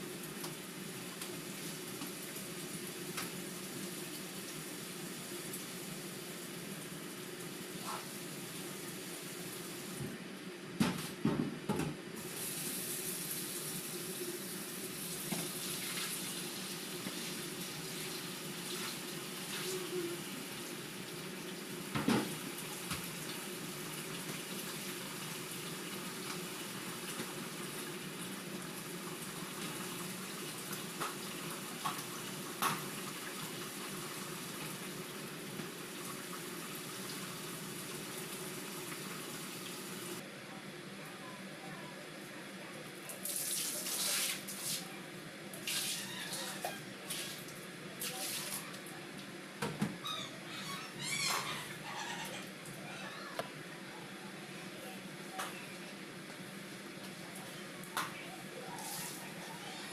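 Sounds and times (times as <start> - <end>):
water running on tiled floor: 0.0 - 10.1, 12.2 - 40.2, 43.0 - 49.0, 56.8 - 59.9.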